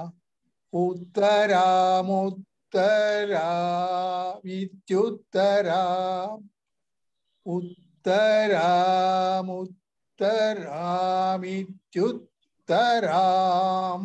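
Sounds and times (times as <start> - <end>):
man chanting verse: 7.5 - 14.0.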